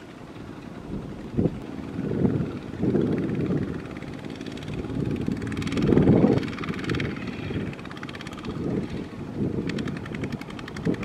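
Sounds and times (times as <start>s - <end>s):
diesel tractor engine working hard: 0.0s - 11.0s.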